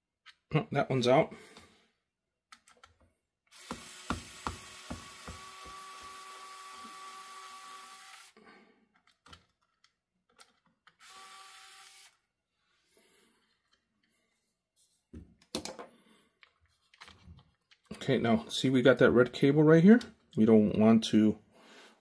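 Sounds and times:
electric screwdriver whining: 3.5s - 8.4s, 11.0s - 12.2s.

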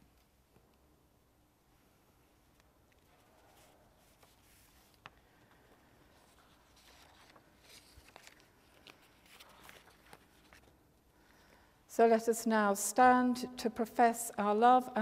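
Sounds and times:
paper sheets rustling: 2.9s - 10.8s.

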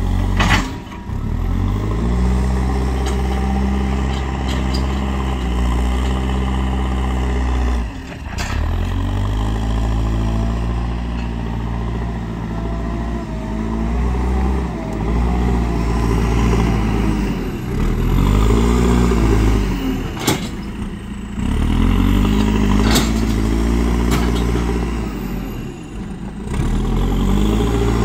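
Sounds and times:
diesel engine revving: 0.0s - 28.0s.

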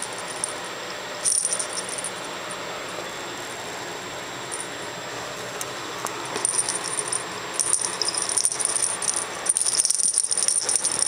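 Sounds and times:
cat toy jingly rattle: 0.0s - 2.6s, 6.4s - 11.0s.

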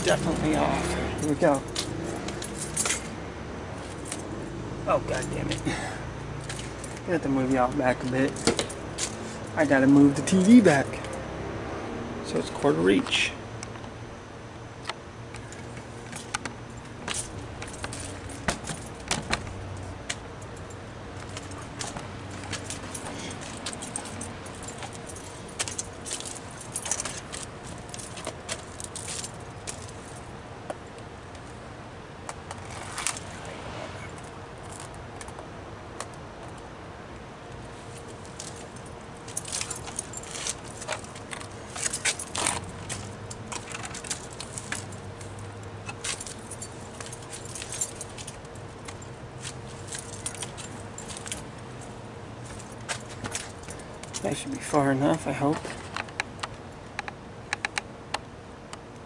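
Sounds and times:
clicks clinks and rattles: 0.0s - 3.1s, 15.4s - 30.2s, 38.0s - 54.3s.

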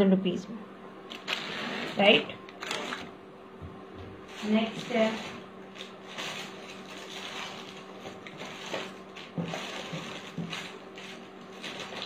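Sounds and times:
plastic packets rustling: 4.3s - 12.0s.

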